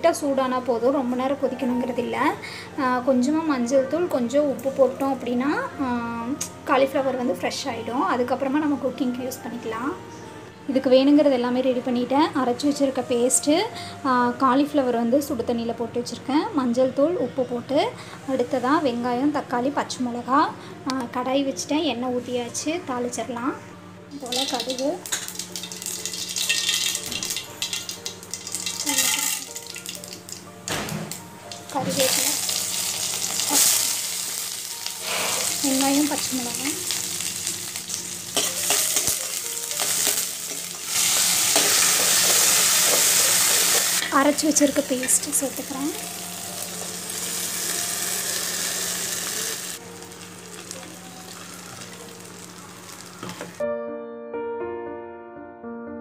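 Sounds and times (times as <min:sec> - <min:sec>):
seeds sizzling and popping in oil: 0:24.2 - 0:30.5, 0:31.5 - 0:53.5.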